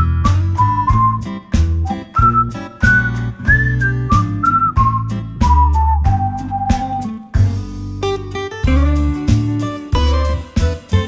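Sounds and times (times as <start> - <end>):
deep bass notes: 0.0 - 11.0
guitar tune: 0.0 - 11.0.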